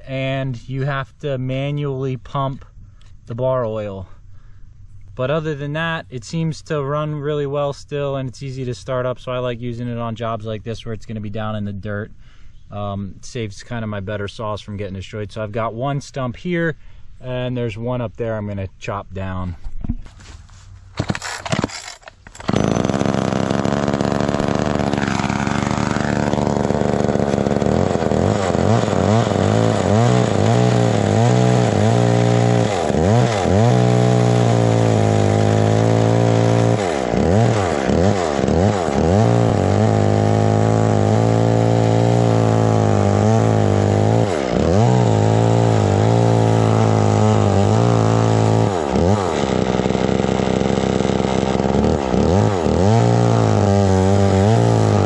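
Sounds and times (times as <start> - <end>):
chainsaw cutting wood: 21.0 - 55.0.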